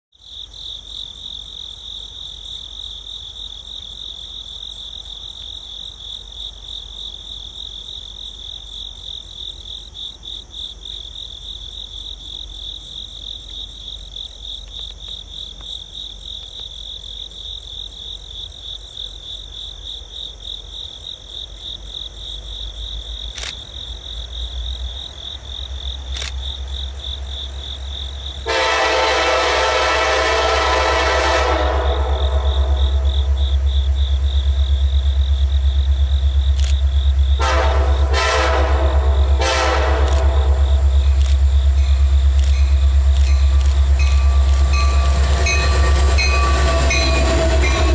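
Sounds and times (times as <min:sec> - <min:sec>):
insects trilling: 0:00.2 - 0:29.2, 0:30.6 - 0:47.9
freight train rumble: 0:16.9 - 0:47.9
train horn blast: 0:28.4 - 0:33.3, 0:37.4 - 0:41.0, 0:42.7 - 0:47.9.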